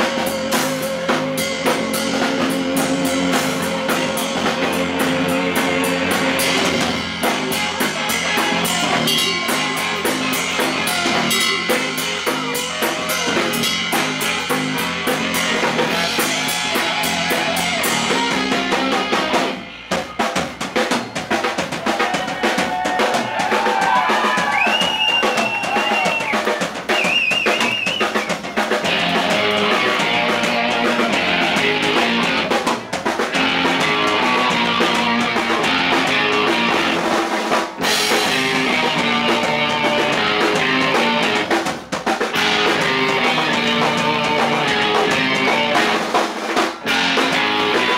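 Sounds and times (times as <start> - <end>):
high wavering guitar lead: 0.0 - 19.8, 28.8 - 32.7, 33.3 - 37.1, 37.8 - 41.5, 42.4 - 46.0, 46.8 - 47.9
heavy drumming: 0.0 - 47.9
live rock band playing: 0.0 - 47.9.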